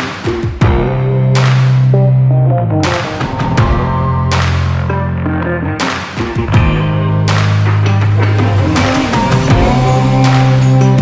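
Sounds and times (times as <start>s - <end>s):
held low bass note: 0.8s - 5.7s
sustained chords: 6.5s - 11.0s
heavy drum and cymbal hits: 8.1s - 11.0s.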